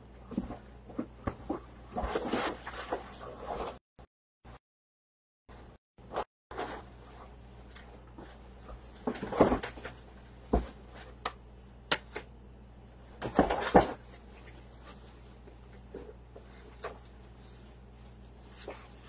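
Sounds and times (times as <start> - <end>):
faint steady hum: 6.6 - 19.0.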